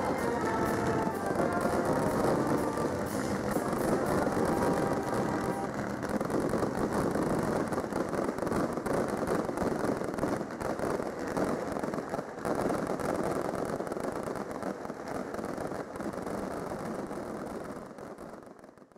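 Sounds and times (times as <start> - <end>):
fireworks crackling: 0.0 - 18.9.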